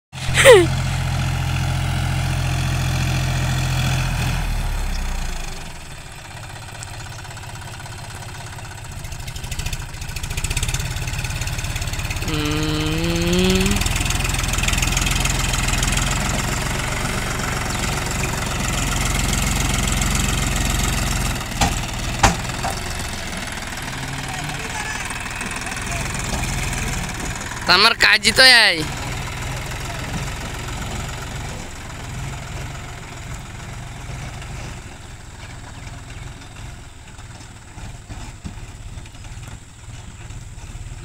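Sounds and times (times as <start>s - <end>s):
tractor diesel engine under load: 0.1s - 41.0s.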